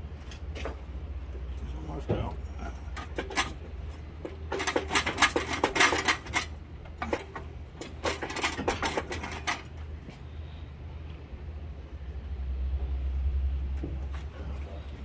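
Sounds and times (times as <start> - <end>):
hoist chain clinking: 4.5 - 9.7.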